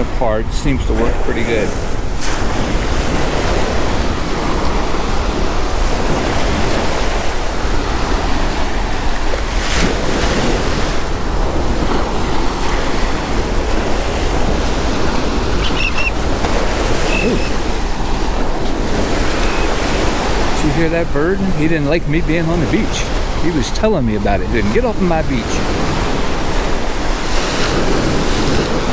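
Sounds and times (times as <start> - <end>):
surf breaking on beach: 0.0 - 28.9
wind rumbling on microphone: 0.0 - 28.9
bird short high calls: 15.6 - 16.2, 17.0 - 17.7, 19.3 - 19.8.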